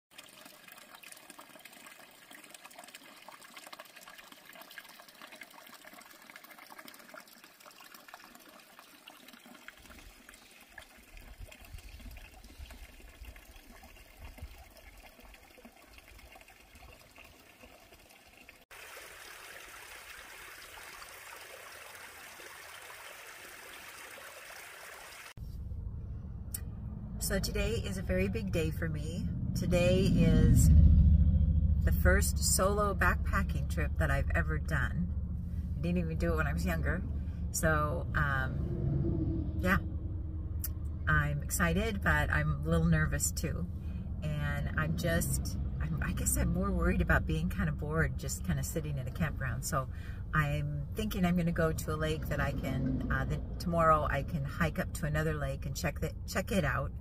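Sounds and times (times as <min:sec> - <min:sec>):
brook trickling over rocks: 0:00.1 - 0:25.4.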